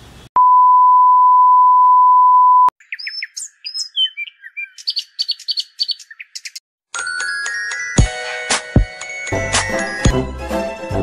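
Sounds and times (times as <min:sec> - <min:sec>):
birds chirping: 0:02.8 - 0:06.6.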